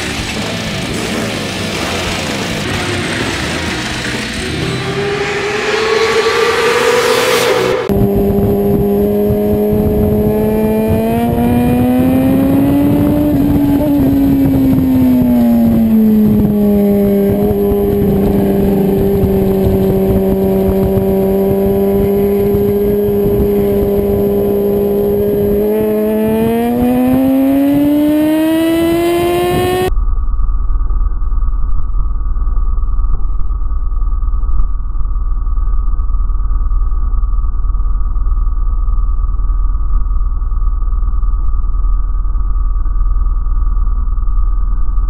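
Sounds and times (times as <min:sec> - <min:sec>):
motorcycle engine at high revs: 0:00.0 - 0:29.9
heavy wind rush: 0:00.7 - 0:29.9.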